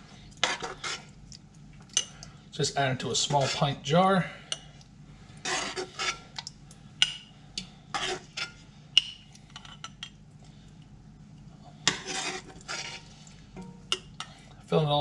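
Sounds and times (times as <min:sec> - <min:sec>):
metal spoon scraping a pot: 0:00.4 - 0:01.1, 0:03.2 - 0:03.8, 0:05.4 - 0:06.3, 0:07.6 - 0:10.1, 0:11.8 - 0:14.4.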